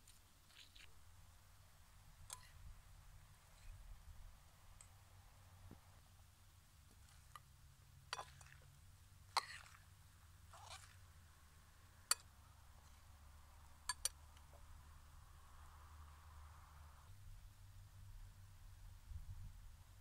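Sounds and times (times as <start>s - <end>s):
salad rustling: 0.0s - 2.6s, 6.8s - 7.4s, 8.1s - 11.4s
metal spoon tapping ceramic bowl: 13.9s - 14.2s.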